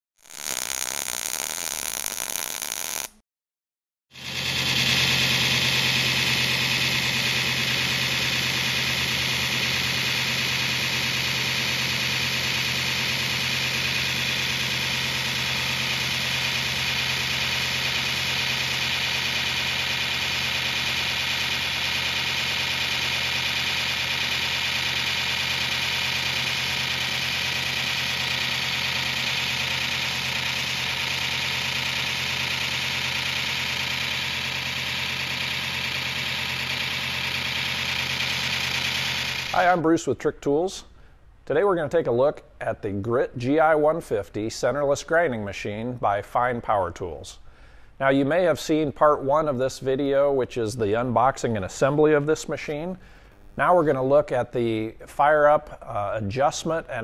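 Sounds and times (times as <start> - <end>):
belt grinder hum and hiss: 4.2 - 39.8, 52.7 - 54.1.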